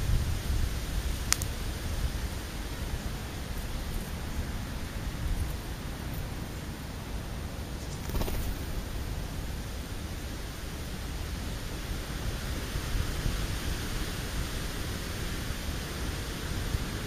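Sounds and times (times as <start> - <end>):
wind buffeting microphone: 0.0 - 6.4.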